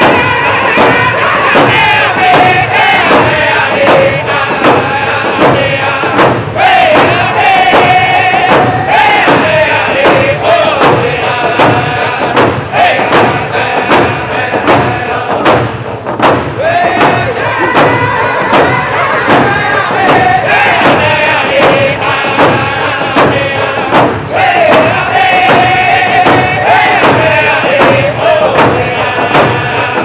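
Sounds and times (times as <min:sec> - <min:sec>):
men singing in high voices: 0:00.0 - 0:15.8, 0:16.4 - 0:30.0
hand drums beating: 0:00.0 - 0:30.0.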